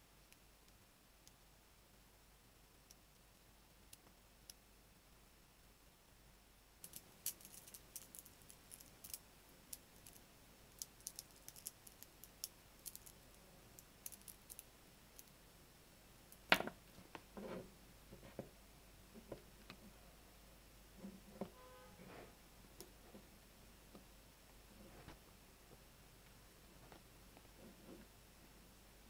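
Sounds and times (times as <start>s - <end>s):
magnetic balls clicking together: 6.8s - 15.4s.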